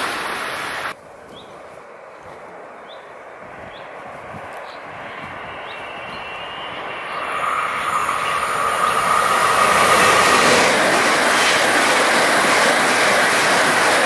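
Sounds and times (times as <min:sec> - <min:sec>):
train wheels rolling on rails: 0:03.7 - 0:14.0.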